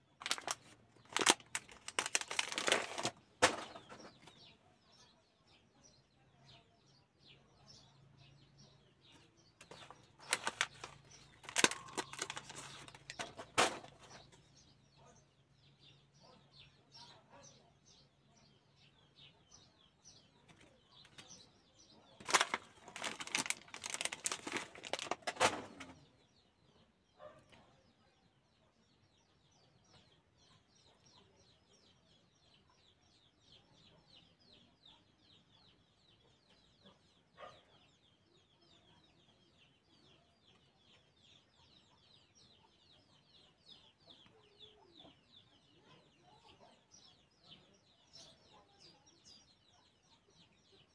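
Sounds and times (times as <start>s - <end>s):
faint bird chirping: 0.0s - 50.9s
foil card packs crackling: 0.2s - 4.0s, 9.6s - 14.1s, 22.2s - 25.9s.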